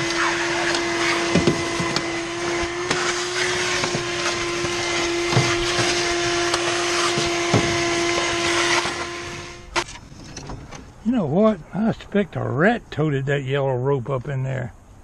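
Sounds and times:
shop vacuum running: 0.0 - 9.8.

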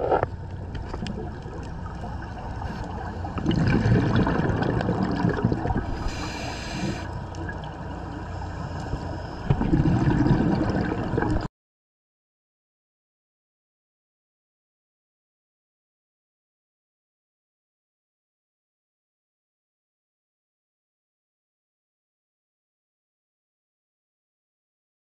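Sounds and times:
exhaled bubbles rumbling underwater: 0.0 - 11.5
regulator hissing inhalation: 6.0 - 7.1.

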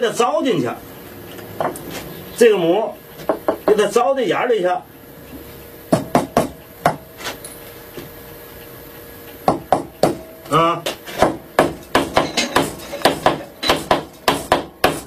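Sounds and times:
hammer striking wood chisel: 5.9 - 7.0, 9.5 - 10.3, 11.2 - 15.0.

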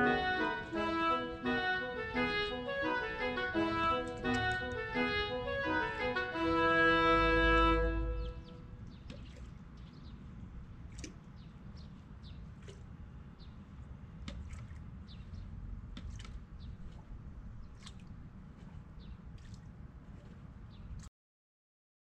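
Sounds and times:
small birds chirping: 8.0 - 13.7, 15.0 - 17.0, 19.0 - 19.5.

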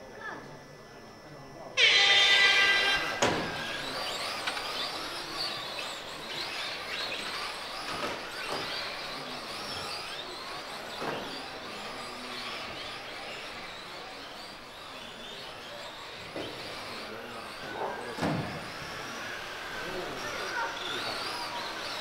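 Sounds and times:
electric motor whine: 0.5 - 22.0
electronic tone: 1.8 - 4.6.

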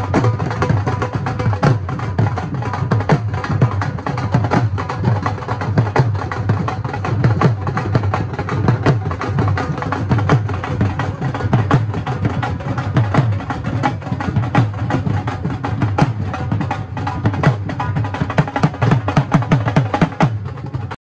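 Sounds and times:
drums played with sticks: 0.0 - 21.0.

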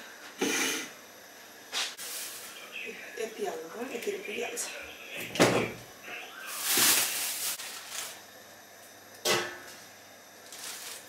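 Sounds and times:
plastic bag rustling: 2.0 - 2.6, 6.4 - 8.3, 10.4 - 11.0.

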